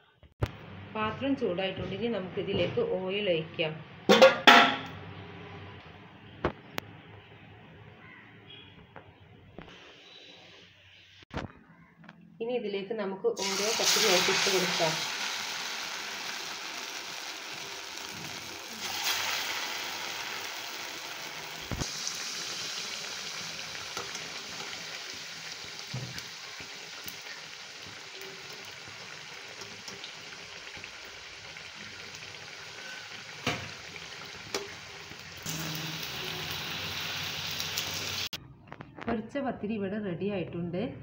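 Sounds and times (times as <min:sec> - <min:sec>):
oil sizzling in a pan: 0:13.4 - 0:38.4.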